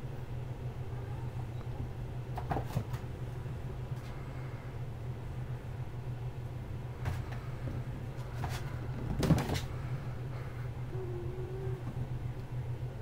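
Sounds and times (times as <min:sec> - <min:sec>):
low hum: 0:03.0 - 0:13.0.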